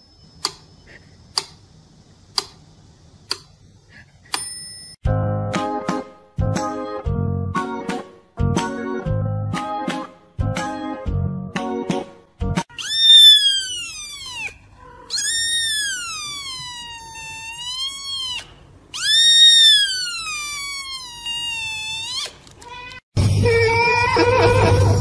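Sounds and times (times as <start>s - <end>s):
kitten meowing: 12.7s - 23.0s.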